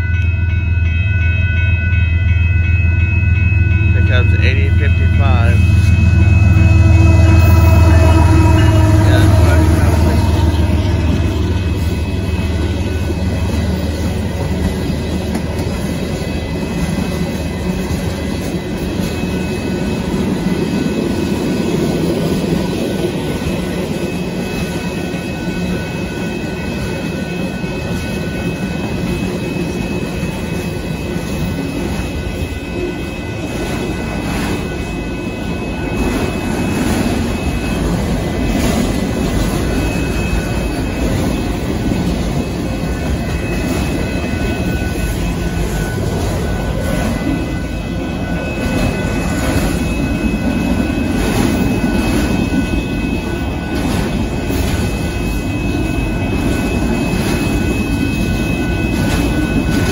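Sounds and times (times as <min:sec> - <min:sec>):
locomotive rumble: 0:00.0 - 0:59.9
high-pitched wheel squeal: 0:05.7 - 0:13.4
freight cars rumbling and clacking: 0:07.4 - 0:24.2.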